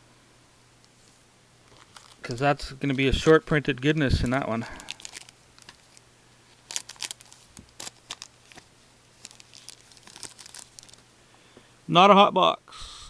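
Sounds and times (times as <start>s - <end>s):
foil wrapper crinkling: 1.6s - 11.0s.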